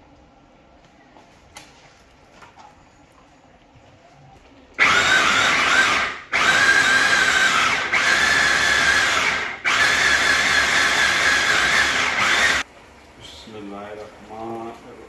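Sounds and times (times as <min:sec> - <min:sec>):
food chopper motor whine: 0:04.8 - 0:12.6.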